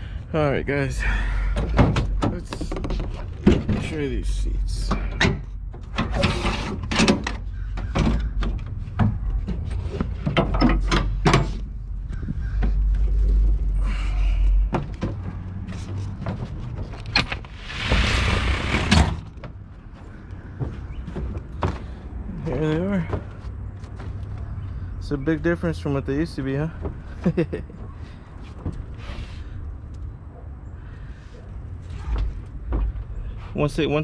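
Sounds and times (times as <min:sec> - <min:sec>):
rough scraping: 0:15.6 - 0:19.4.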